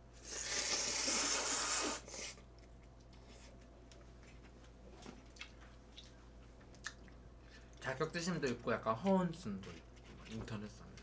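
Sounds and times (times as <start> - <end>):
loud hissing noodle slurp: 0.2 - 2.4.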